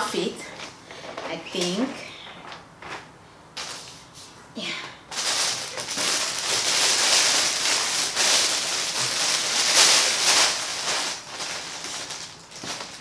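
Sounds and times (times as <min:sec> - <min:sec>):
plastic packaging crinkling: 0:03.6 - 0:03.9, 0:05.1 - 0:13.0.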